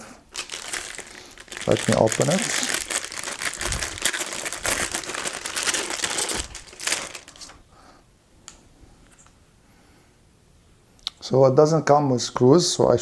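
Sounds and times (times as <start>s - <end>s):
metallic plastic bag crinkling: 0.3s - 7.6s.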